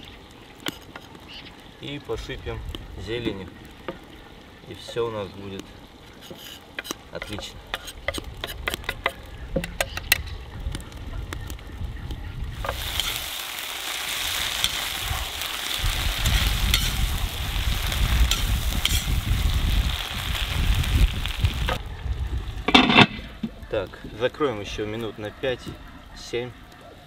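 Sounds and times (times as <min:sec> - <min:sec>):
knife scraping wooden board: 0:06.2 - 0:08.8
food sizzling in a pot: 0:12.6 - 0:21.8.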